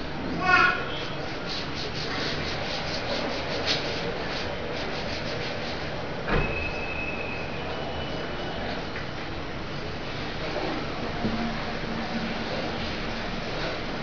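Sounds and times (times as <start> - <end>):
duster rubbing chalk off blackboard: 1.1 - 6.2.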